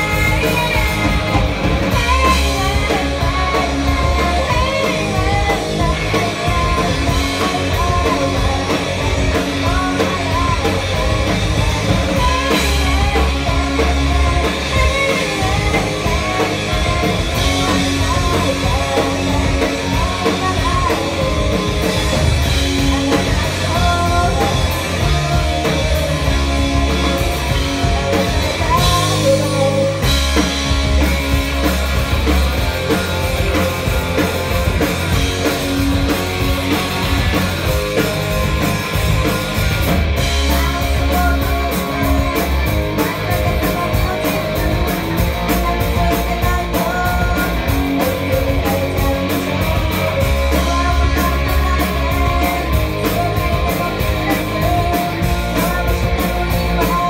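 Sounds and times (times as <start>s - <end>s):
live rock band playing: 0.0s - 57.0s
person singing: 0.0s - 57.0s.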